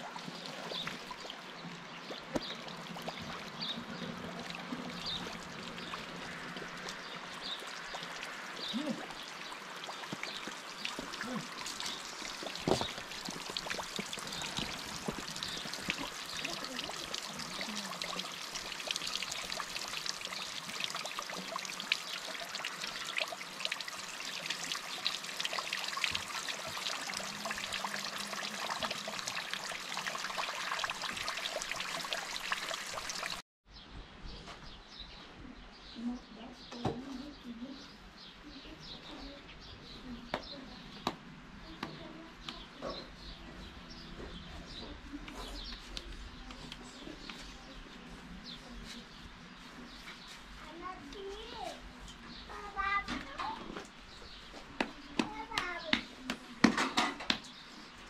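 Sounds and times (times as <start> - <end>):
water pouring and dripping: 0.0 - 33.4, 49.6 - 58.0.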